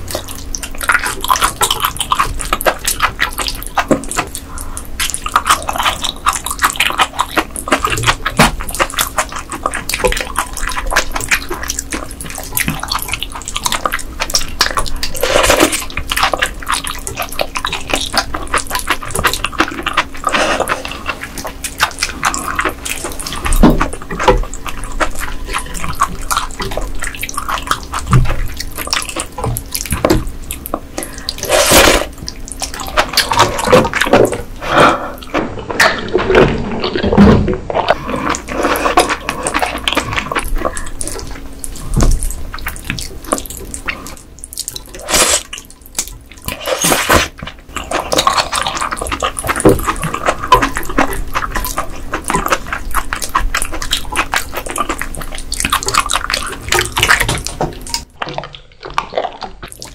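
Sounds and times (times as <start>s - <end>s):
wet chewing sounds: 0.0s - 59.9s
slurping from a spoon: 31.0s - 32.2s, 44.0s - 45.6s, 46.6s - 47.3s.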